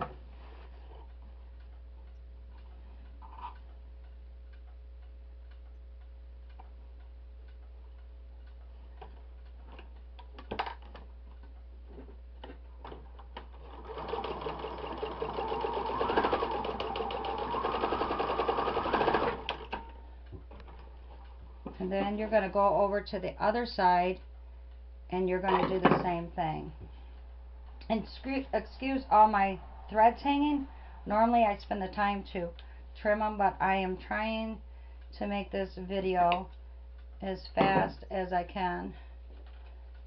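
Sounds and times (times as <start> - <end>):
sewing machine stitching: 13.6 - 19.8.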